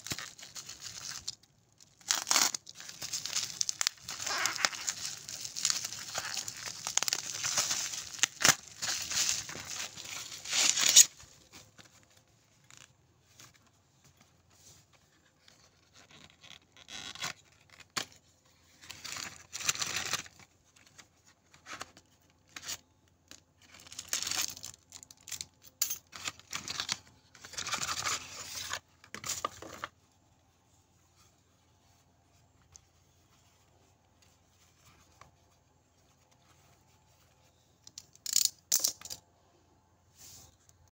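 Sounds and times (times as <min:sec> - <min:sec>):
packaging tearing and rustling: 0:00.0 - 0:11.8, 0:23.6 - 0:29.7
plastic wrap crinkling: 0:00.0 - 0:11.9.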